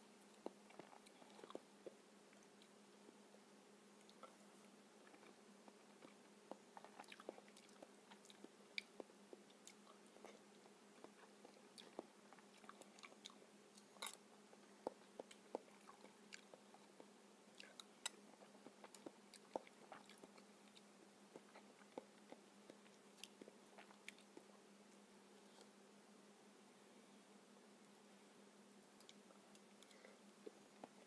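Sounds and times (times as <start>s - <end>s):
faint steady hum: 0.0s - 31.0s
chewing: 0.2s - 2.8s, 4.0s - 25.7s.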